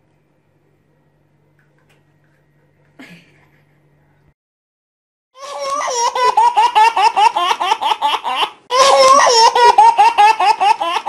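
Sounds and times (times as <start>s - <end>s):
baby giggling: 5.4s - 11.0s.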